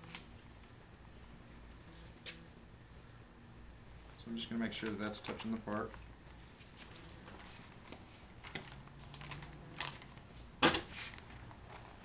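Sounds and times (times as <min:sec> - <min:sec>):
plastic film crinkling: 0:04.7 - 0:12.0.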